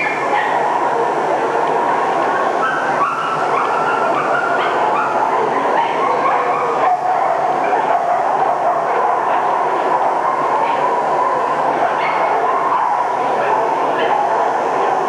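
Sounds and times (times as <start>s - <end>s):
dogs yipping and whining: 2.6s - 13.2s.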